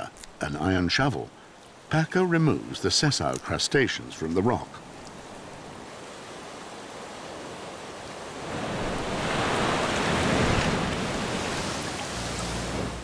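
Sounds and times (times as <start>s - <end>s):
surf washing on rocky shore: 0.0s - 13.0s
wave breaking over rocks: 5.6s - 13.0s.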